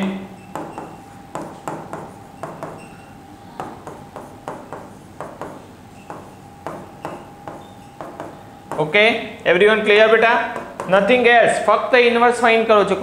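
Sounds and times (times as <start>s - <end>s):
marker tapping on whiteboard: 0.5s - 9.0s, 10.5s - 11.2s.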